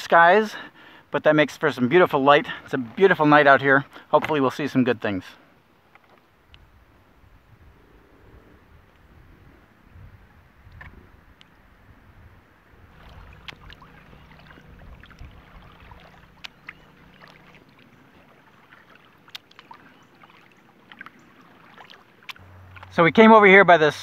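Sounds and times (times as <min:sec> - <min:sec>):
paddle strokes in water: 0:12.8 - 0:23.3
water dripping: 0:12.9 - 0:23.2.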